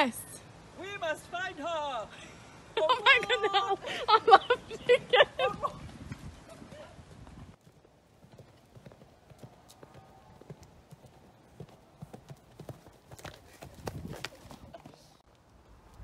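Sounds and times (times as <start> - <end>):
horse hoofbeats on sand: 5.3 - 15.2.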